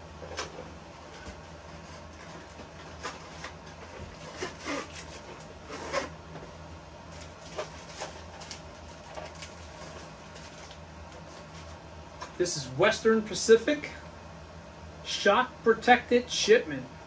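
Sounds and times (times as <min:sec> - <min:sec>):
cardboard and plastic rustling: 0:00.1 - 0:11.8.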